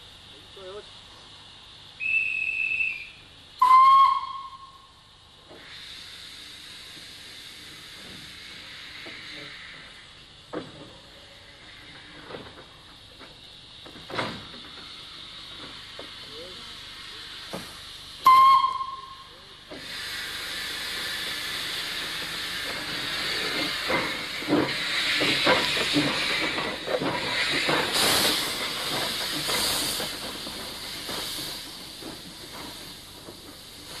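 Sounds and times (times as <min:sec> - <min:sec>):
steam hissing: 0:00.0 - 0:34.0
steam locomotive whistle: 0:02.0 - 0:04.9, 0:18.2 - 0:19.3.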